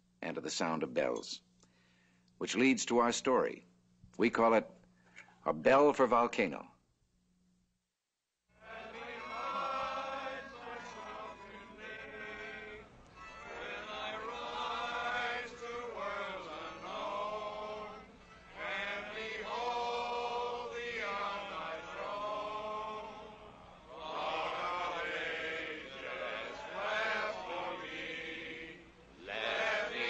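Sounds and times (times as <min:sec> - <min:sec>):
group singing a slow hymn: 0:08.6 - 0:30.0.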